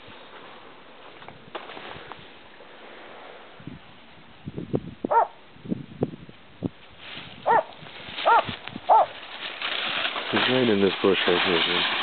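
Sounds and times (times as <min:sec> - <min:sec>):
dog barking: 0:05.1 - 0:05.4, 0:07.4 - 0:09.1
crunches and rustles in brush: 0:06.9 - 0:12.0.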